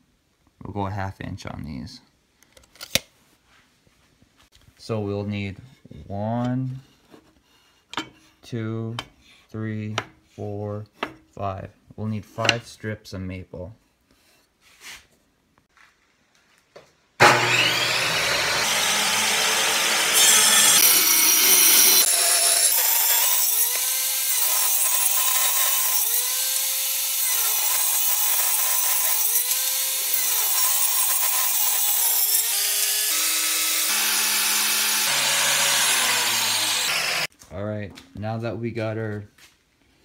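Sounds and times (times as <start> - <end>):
table saw ripping boards: 17.2 - 37.3.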